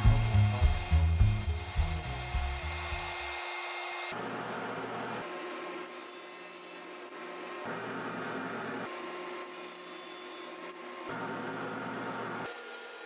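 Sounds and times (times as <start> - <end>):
table saw cutting wood: 0.0 - 4.3, 5.2 - 7.8, 8.8 - 11.1, 12.4 - 13.0.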